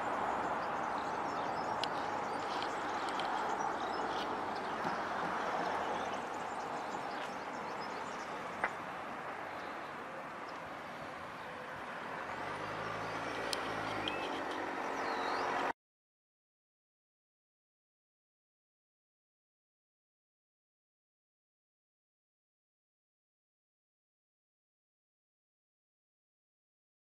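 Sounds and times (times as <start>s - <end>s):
cars and tyres passing: 0.0s - 15.8s
vehicle engine approaching: 0.0s - 15.8s.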